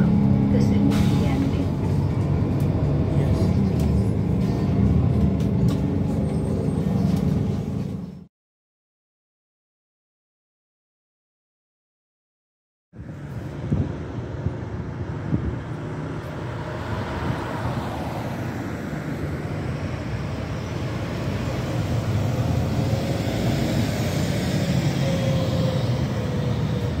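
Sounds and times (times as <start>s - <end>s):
bus diesel engine drone: 0.0s - 8.3s, 13.0s - 27.0s.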